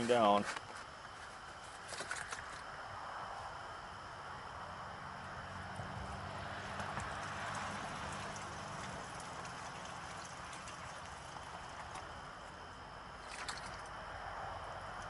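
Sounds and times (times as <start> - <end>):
liquid splashing and trickling down pipe: 6.7 - 14.0.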